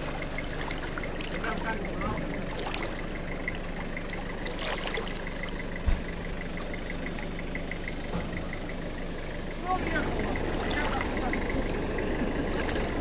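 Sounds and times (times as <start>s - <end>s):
faint regular ticking: 0.0s - 13.0s
vehicle engine idling: 0.0s - 13.0s
low thump: 5.8s - 6.3s.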